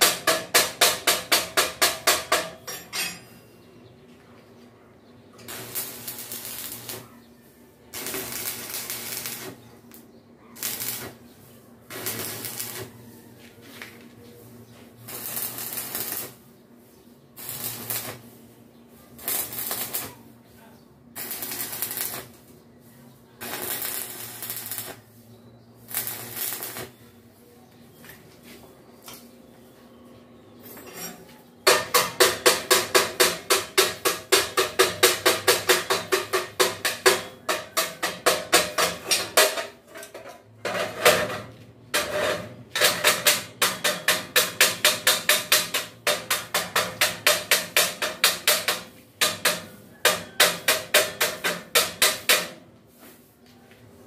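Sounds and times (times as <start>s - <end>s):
arc welding crackle: 5.4s - 7.1s, 7.8s - 13.1s, 14.9s - 16.5s, 17.4s - 20.4s, 21.1s - 22.6s, 23.4s - 25.2s, 25.8s - 27.1s, 42.0s - 52.6s.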